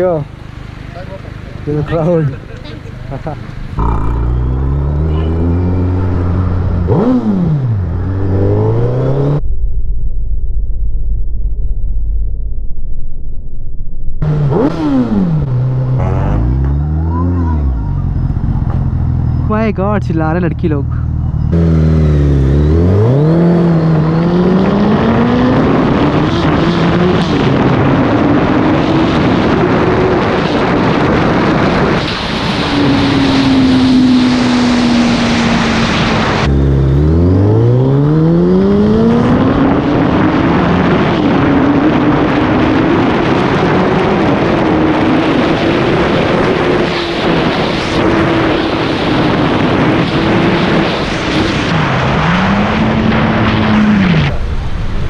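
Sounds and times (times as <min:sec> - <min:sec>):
motorcycle engine accelerating: 0:00.0 - 0:11.3, 0:14.2 - 0:19.8, 0:20.8 - 0:55.0
wind rush: 0:21.2 - 0:55.0.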